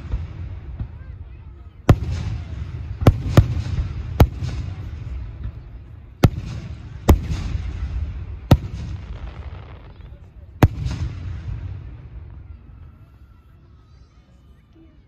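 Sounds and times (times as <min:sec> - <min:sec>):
fireworks bangs: 0:00.0 - 0:13.1
fireworks crackle: 0:06.3 - 0:13.0.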